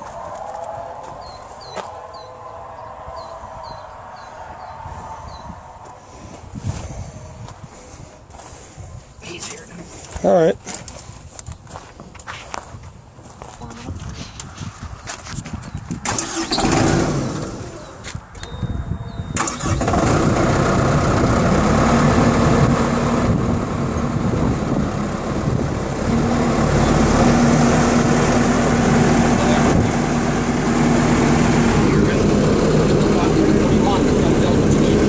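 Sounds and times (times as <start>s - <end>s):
diesel engine starting: 15.9s - 35.0s.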